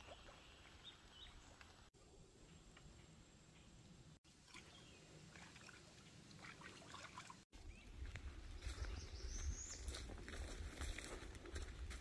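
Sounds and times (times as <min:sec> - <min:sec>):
wind rumble on microphone: 0:07.6 - 0:12.0.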